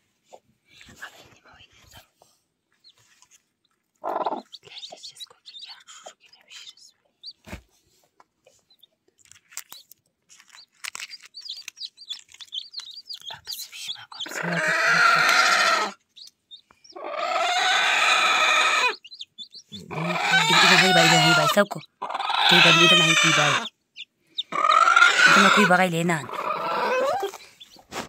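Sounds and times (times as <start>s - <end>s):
chicks peeping: 2.8s - 7.6s, 9.7s - 28.0s
chicken drawn-out calls: 14.3s - 16.0s, 16.9s - 23.7s, 24.4s - 27.4s.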